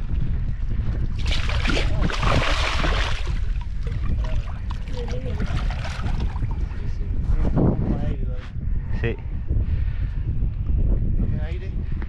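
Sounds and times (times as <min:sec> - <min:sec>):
wind on microphone: 0:00.0 - 0:12.0
fish splashing in water: 0:01.2 - 0:06.5.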